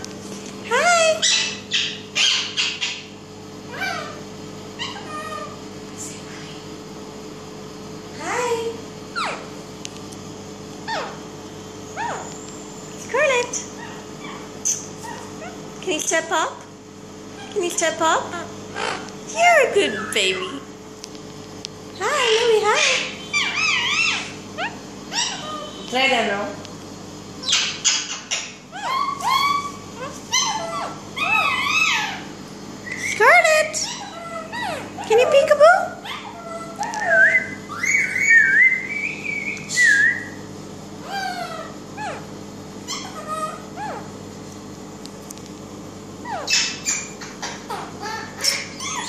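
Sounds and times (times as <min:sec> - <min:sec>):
faint steady hum: 0:00.0 - 0:49.0
parakeet calling: 0:00.6 - 0:04.2, 0:04.8 - 0:05.6, 0:09.1 - 0:09.5, 0:10.8 - 0:11.3, 0:11.9 - 0:15.6, 0:17.3 - 0:20.7, 0:21.9 - 0:26.5, 0:27.4 - 0:44.1, 0:46.2 - 0:49.0.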